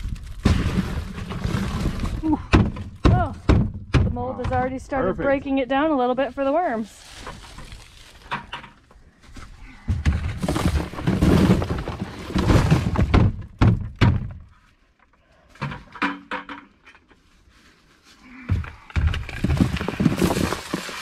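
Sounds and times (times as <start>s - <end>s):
thuds: 0.4s - 4.8s, 9.7s - 14.4s.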